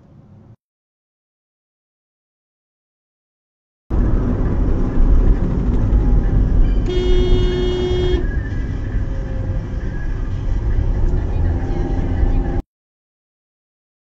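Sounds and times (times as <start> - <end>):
car engine and road rumble: 0.0 - 0.6, 3.9 - 12.6
car horn blast: 6.7 - 8.3.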